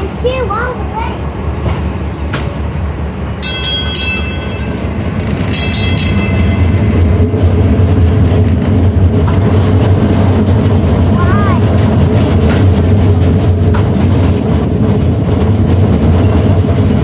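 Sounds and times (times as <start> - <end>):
streetcar motors and wheels rumbling: 0.0 - 17.0
streetcar bell ringing: 3.0 - 9.3.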